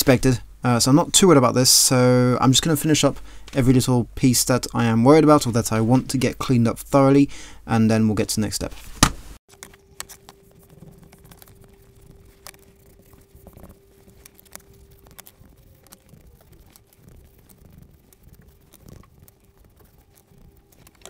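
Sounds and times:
faint steady hum: 0:09.5 - 0:21.0
paper towel rubbing on leather: 0:09.9 - 0:21.0.

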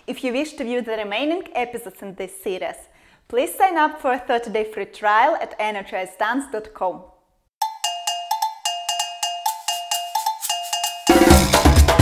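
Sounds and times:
cowbell tapping rhythm: 0:07.6 - 0:12.0
band with heavy drums: 0:11.1 - 0:12.0.

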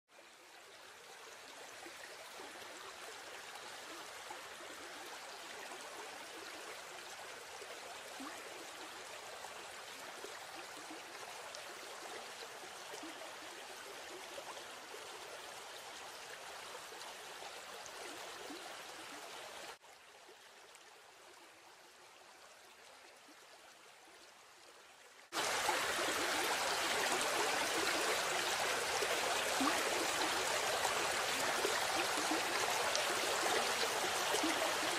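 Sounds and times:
stream and small waterfall rushing: 0:25.3 - 0:34.9.

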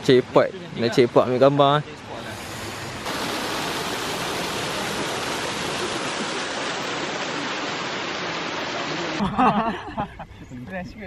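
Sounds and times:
rushing water: 0:02.2 - 0:09.2.

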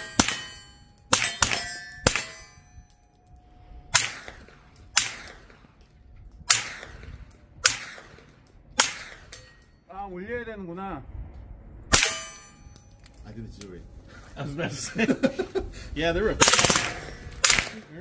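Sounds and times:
steel targets clanging: 0:00.0 - 0:09.9, 0:11.9 - 0:13.4
suppressed gunshots: 0:06.5 - 0:09.4, 0:16.4 - 0:17.9.

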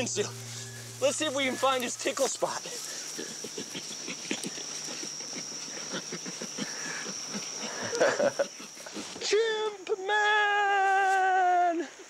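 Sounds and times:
chimpanzee laughing: 0:02.5 - 0:09.2.

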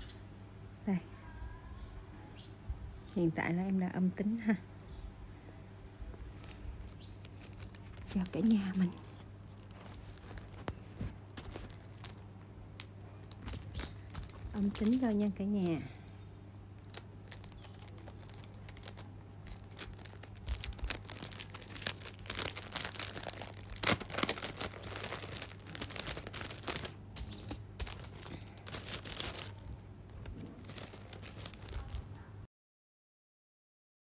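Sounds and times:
plastic bag crinkling: 0:06.3 - 0:32.2.

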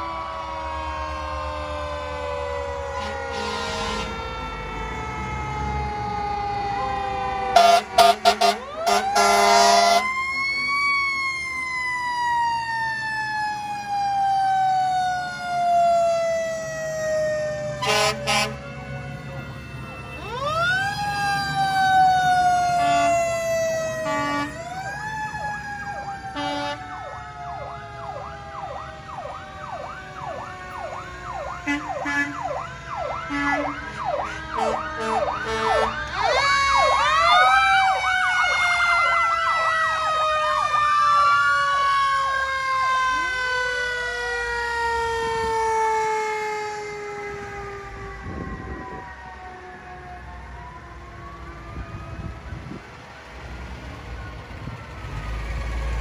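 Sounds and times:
fast sweeping siren: 0:00.0 - 0:53.1, 0:53.9 - 0:56.0
fire engine siren wailing: 0:00.0 - 0:56.0
air horn blasts: 0:03.0 - 0:04.3, 0:07.6 - 0:10.0, 0:17.8 - 0:18.6, 0:22.8 - 0:23.2, 0:24.0 - 0:24.6, 0:26.4 - 0:26.8, 0:31.6 - 0:32.5, 0:33.3 - 0:35.9.

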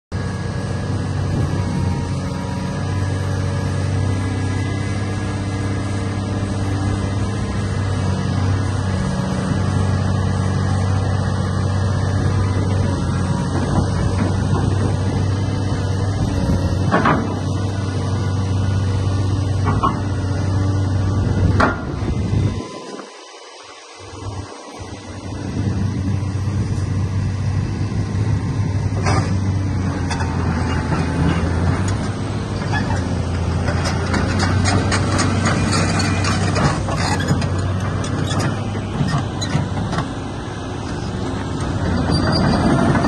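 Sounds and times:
excavator diesel engine running: 0:00.2 - 0:43.0.

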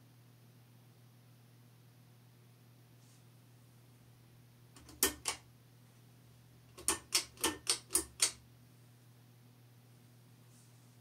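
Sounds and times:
ceiling fan pull-chain clicks: 0:04.8 - 0:05.4, 0:06.7 - 0:08.4.

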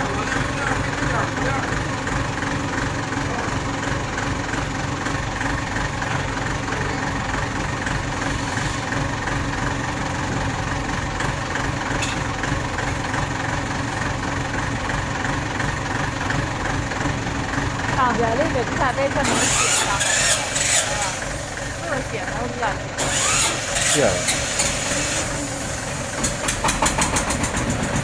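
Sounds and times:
forklift engine idling: 0:00.0 - 0:28.0.

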